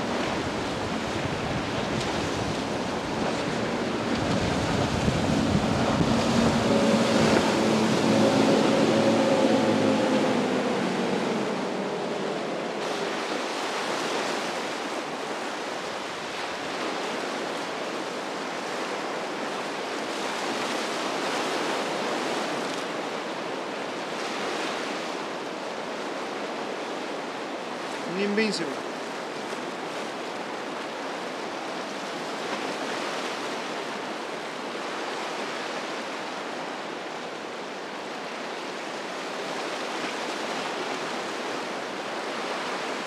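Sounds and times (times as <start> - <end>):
wind buffeting microphone: 0.0 - 13.9
boat engine drone: 0.0 - 43.0
surf washing: 0.0 - 43.0.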